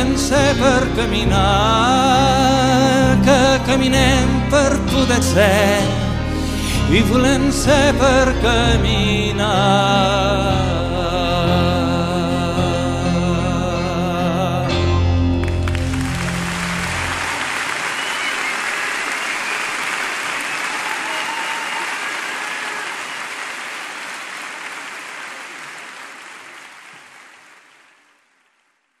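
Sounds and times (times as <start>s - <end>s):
song final chord: 0.0s - 17.6s
audience applauding: 15.4s - 28.9s.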